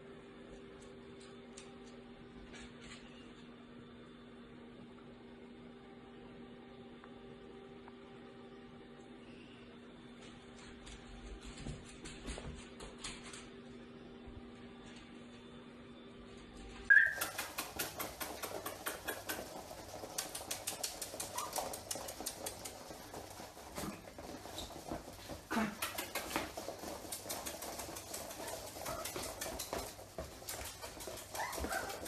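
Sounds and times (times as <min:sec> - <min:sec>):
faint steady hum: 0:00.0 - 0:32.0
puppies yipping: 0:16.9 - 0:19.3, 0:21.0 - 0:22.0, 0:30.9 - 0:32.0
puppy claws clicking on wood: 0:17.1 - 0:23.0.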